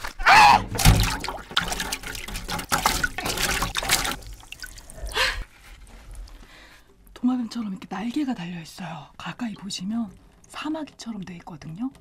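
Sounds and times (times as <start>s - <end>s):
water dripping: 0.0s - 5.4s
water splashing in fish tank: 0.0s - 5.4s.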